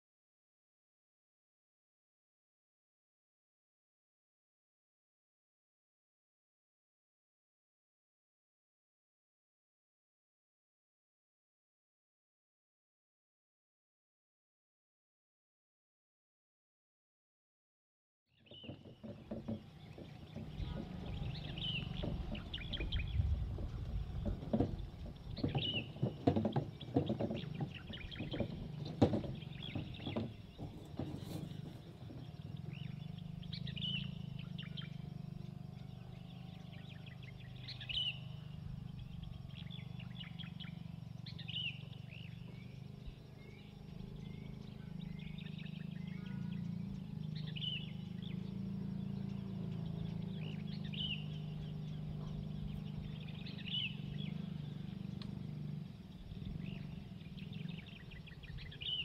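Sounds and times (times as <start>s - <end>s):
bird calling: 18.4s - 59.0s
wooden cart rattling over gravel: 18.5s - 35.8s.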